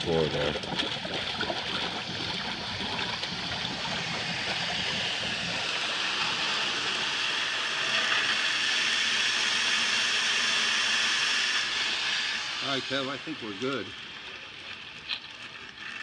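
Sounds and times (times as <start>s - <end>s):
high-pressure water rushing through pipe: 0.0s - 16.0s.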